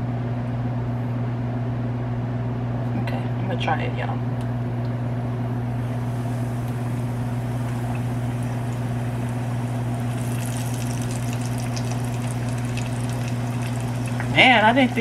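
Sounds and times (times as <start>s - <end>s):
steady low hum: 0.0s - 15.0s
chicken sizzling in hot oil: 5.7s - 15.0s.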